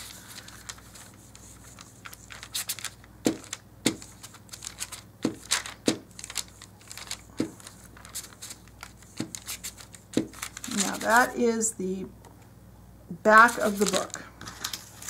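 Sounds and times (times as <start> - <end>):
paper crinkling: 0.0 - 11.4, 13.5 - 15.0.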